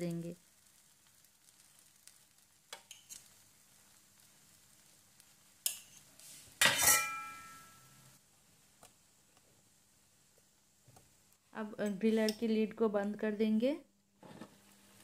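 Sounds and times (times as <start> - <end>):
metal utensil clanking on steel dish: 6.6 - 7.7.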